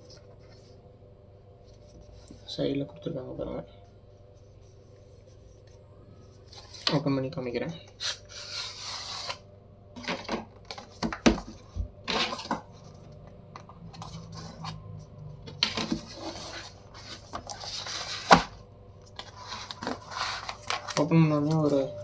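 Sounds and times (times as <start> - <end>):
knife blade scraping cardboard: 8.0 - 9.4.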